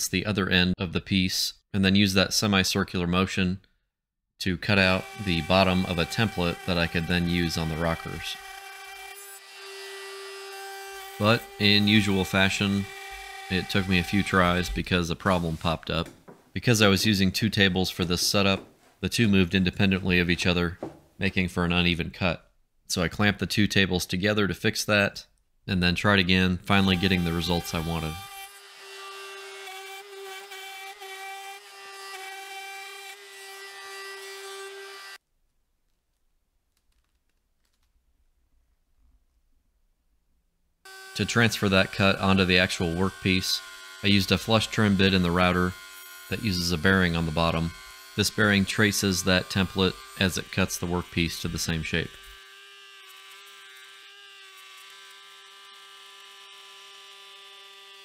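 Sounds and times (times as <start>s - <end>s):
router whining while cutting wood: 4.8s - 15.6s, 26.8s - 35.2s, 40.9s - 58.0s.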